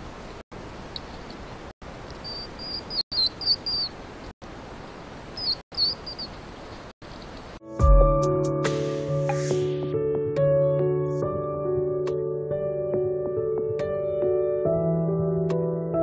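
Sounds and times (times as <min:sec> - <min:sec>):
hedgehogs squeaking: 0:02.1 - 0:04.0, 0:05.4 - 0:06.4.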